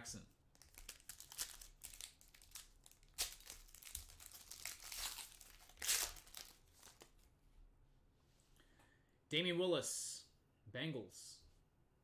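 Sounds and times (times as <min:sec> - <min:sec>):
foil wrapper tearing and crinkling: 0:00.6 - 0:07.1.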